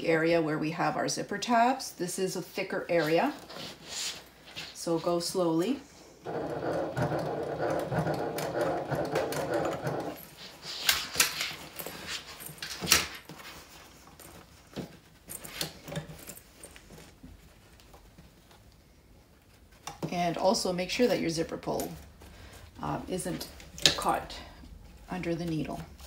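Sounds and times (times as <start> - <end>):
sewing machine running: 6.2 - 10.2.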